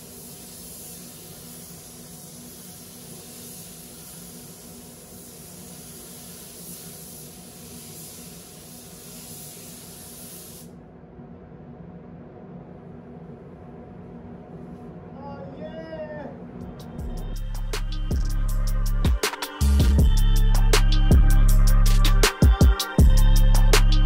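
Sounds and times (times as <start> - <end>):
spray gun hissing: 0.0 - 10.8
steady low hum: 0.0 - 22.3.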